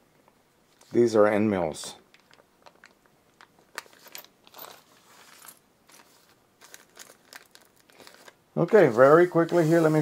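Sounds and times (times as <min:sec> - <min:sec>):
plastic bag crinkling: 0:02.1 - 0:10.0.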